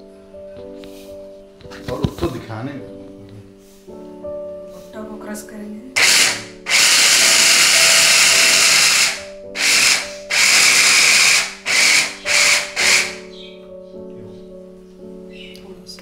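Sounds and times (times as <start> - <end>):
hand blender motor whirring: 6.0 - 13.2.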